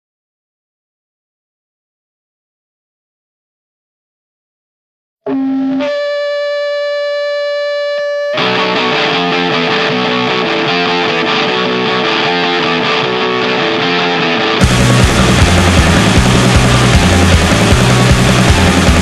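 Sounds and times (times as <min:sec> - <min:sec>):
distorted electric guitar rock: 0:05.3 - 0:19.0.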